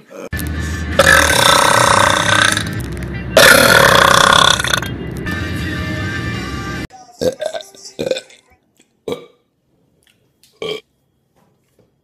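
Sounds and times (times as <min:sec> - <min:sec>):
music: 0:00.4 - 0:03.7, 0:04.6 - 0:08.6
man belching loudly: 0:01.0 - 0:02.7, 0:03.4 - 0:04.9, 0:07.2 - 0:08.4, 0:09.1 - 0:09.4.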